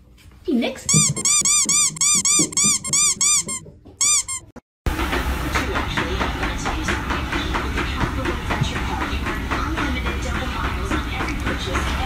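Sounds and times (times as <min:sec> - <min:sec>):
rapid high-pitched squeaks: 0:00.9 - 0:04.6.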